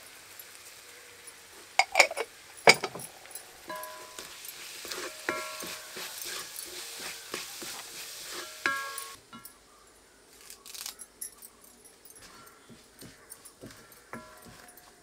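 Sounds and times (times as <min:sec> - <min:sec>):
shallots sizzling: 0:00.0 - 0:09.6, 0:10.3 - 0:11.1, 0:12.2 - 0:15.0
metal ladle scraping a pan: 0:01.8 - 0:09.2, 0:13.6 - 0:15.0
sharp strikes on ringing pan: 0:03.7 - 0:06.1, 0:08.3 - 0:09.6, 0:13.7 - 0:14.8.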